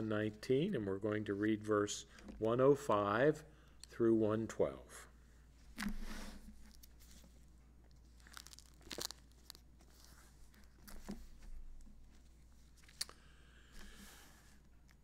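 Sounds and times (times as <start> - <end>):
thin paper pages rustling: 5.8 - 11.6.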